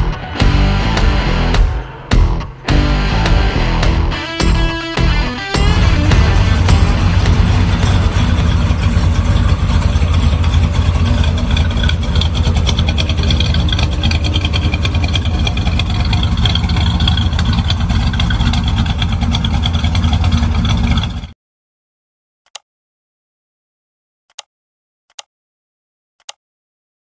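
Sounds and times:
pickup truck engine idling: 5.7s - 21.3s.

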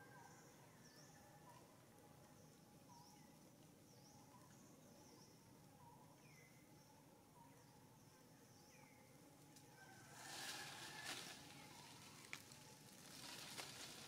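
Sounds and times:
faint bird chirps: 0.0s - 9.2s
rustling hiss: 10.0s - 14.0s.

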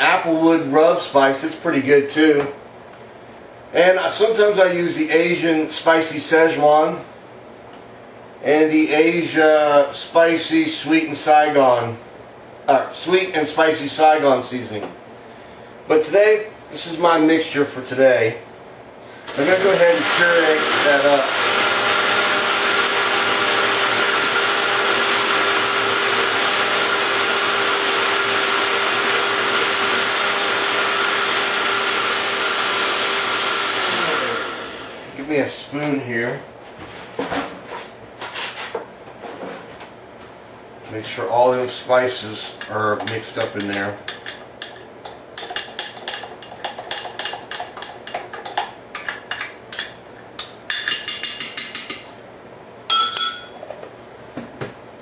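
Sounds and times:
blender running: 19.3s - 35.3s
spoon clinking against glass: 52.9s - 53.6s.

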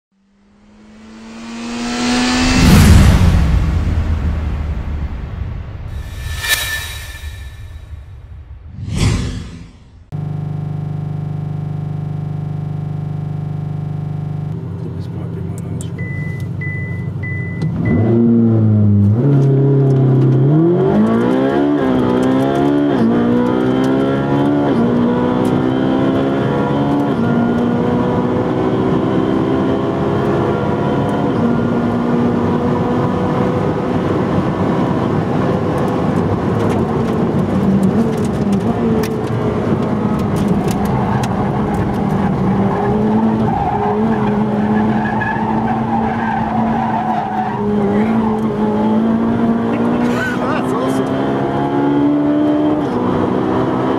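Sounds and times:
car engine accelerating: 0.2s - 4.2s, 17.6s - 53.9s.

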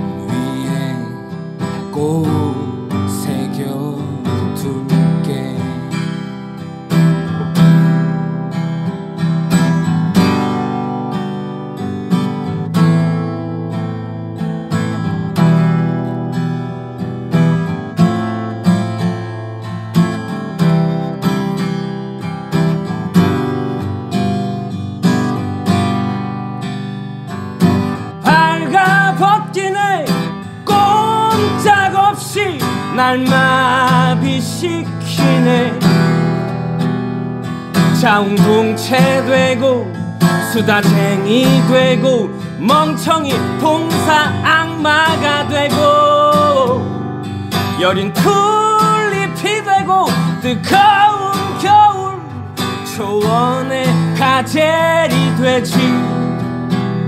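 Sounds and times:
person singing: 0.0s - 6.1s, 28.2s - 36.3s, 37.8s - 47.0s, 47.6s - 56.4s
acoustic guitar chords: 0.0s - 57.0s.

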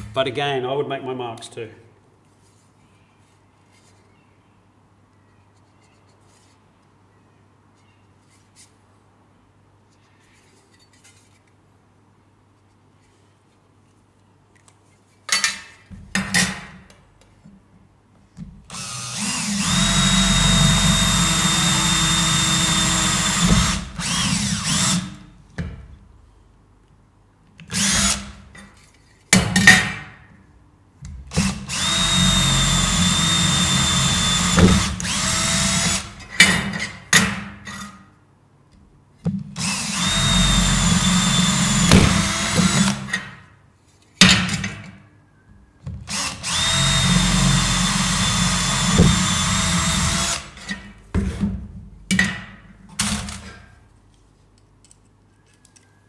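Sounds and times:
cordless drill whining: 18.7s - 25.2s, 31.4s - 36.1s, 39.6s - 43.1s, 46.1s - 50.6s.

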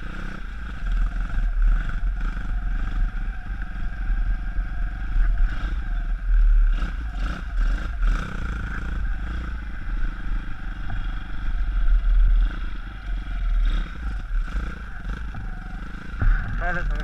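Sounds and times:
motorbike engine running: 0.0s - 17.0s
wind rumble on microphone: 0.0s - 17.0s.

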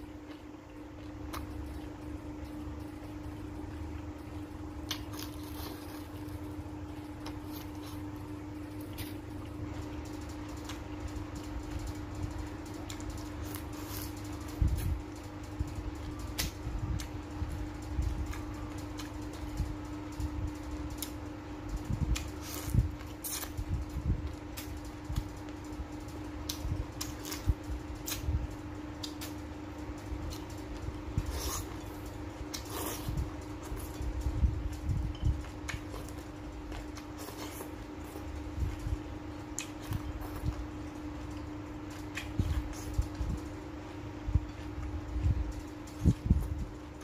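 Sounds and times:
man chewing with mouth clicks: 0.0s - 11.8s, 21.8s - 25.6s, 26.4s - 29.4s, 30.1s - 47.0s
steady low hum: 0.0s - 47.0s.

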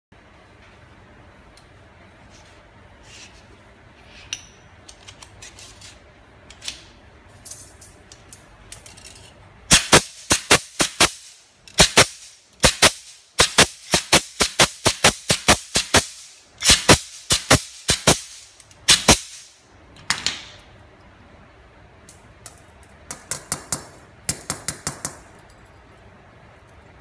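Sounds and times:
pneumatic ring gun snapping shots: 9.7s - 19.5s.

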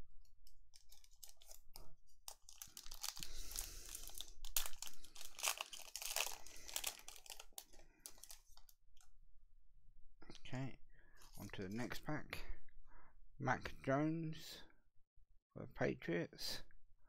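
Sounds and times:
wrapper tearing and crinkling: 0.7s - 8.7s.

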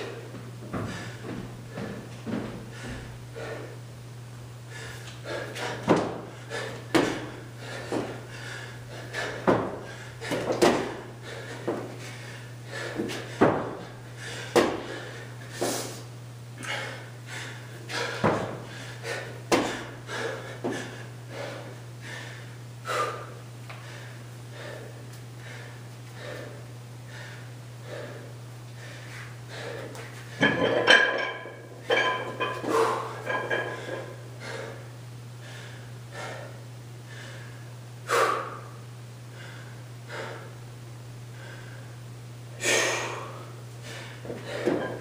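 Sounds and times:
steady low hum: 0.0s - 45.0s
heavy breathing: 0.7s - 3.9s, 4.7s - 40.6s, 41.3s - 42.0s, 42.6s - 45.0s
body thudding on concrete floor: 18.2s - 18.6s.

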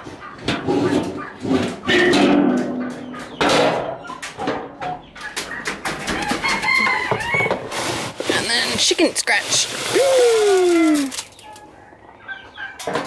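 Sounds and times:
chickens clucking: 0.0s - 9.9s, 10.6s - 13.0s
rooster crowing: 6.1s - 7.7s
scoop scraping metal feed bin: 6.9s - 10.0s.

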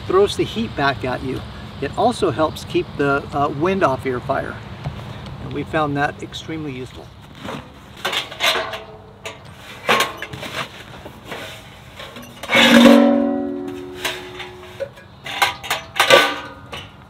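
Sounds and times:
plucked acoustic guitar music: 12.4s - 14.9s
sharp knocks of metal fire pit: 12.4s - 17.0s.

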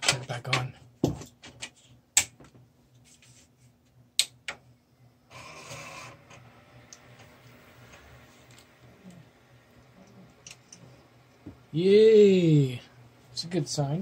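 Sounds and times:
faint low hum: 0.0s - 14.0s
computer fans spinning up: 5.2s - 14.0s.

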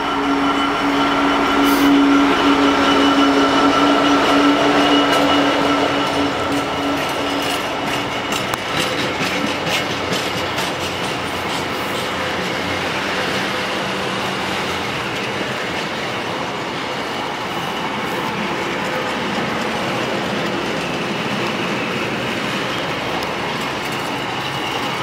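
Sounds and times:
diesel locomotive engine drone: 0.0s - 25.0s
wagon wheels clicking over rail joints: 3.8s - 16.5s.

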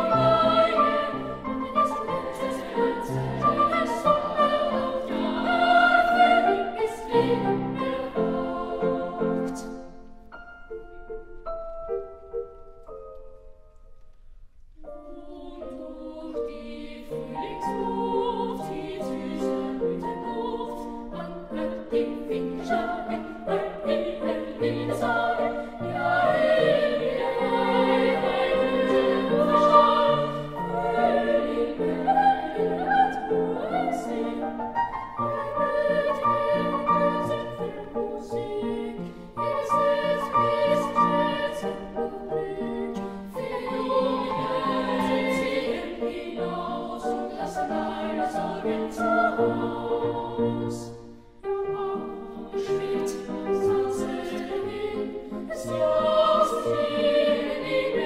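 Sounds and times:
choir singing sustained notes: 0.0s - 13.6s, 14.8s - 58.0s.

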